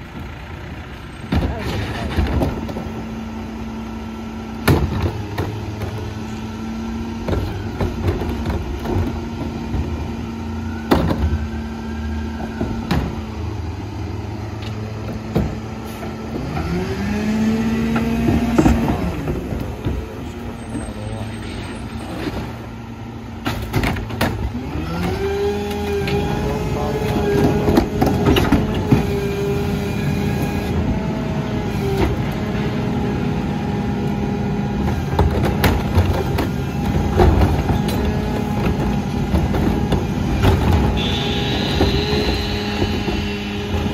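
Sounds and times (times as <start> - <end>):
diesel truck engine revving: 0.0 - 43.9
plastic carts clattering on hopper: 34.9 - 43.9.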